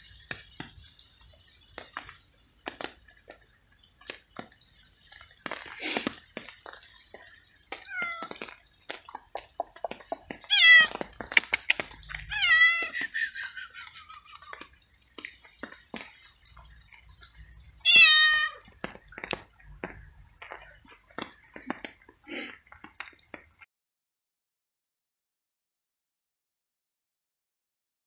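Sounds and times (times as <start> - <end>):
cat meowing: 10.4 - 11.0, 12.2 - 13.0, 17.8 - 18.6.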